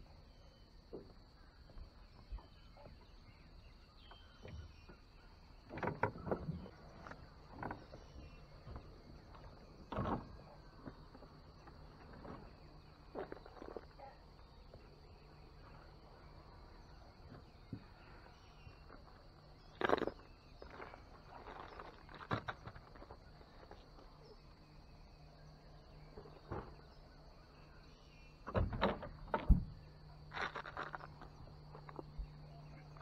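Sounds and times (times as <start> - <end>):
knocks and thumps on boat deck: 28.5 - 29.8.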